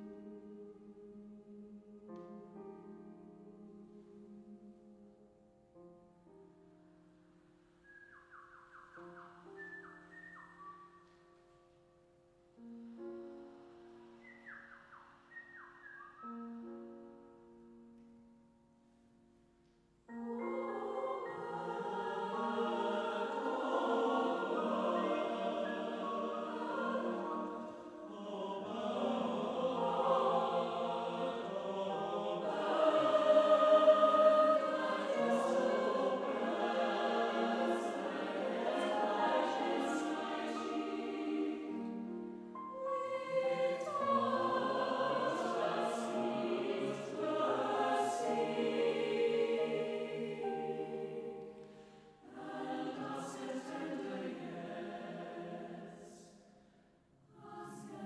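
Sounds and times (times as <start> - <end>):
mixed choir singing: 0.0 - 1.2, 20.1 - 56.4, 57.3 - 58.0.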